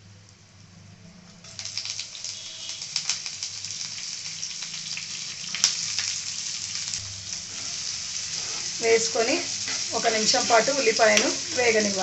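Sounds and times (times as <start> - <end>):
hot oil sizzling and crackling: 1.4 - 12.0.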